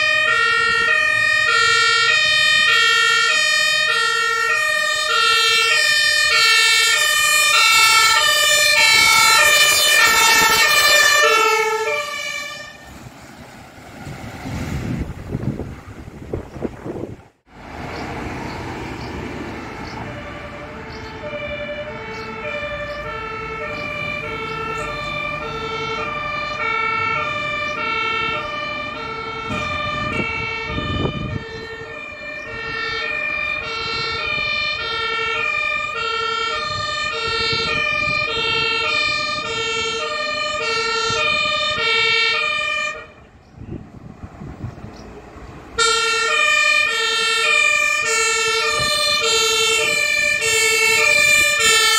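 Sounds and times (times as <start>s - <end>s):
two-tone fire engine siren: 0.0s - 14.0s, 18.8s - 51.9s
car passing: 4.7s - 36.1s, 42.2s - 51.9s.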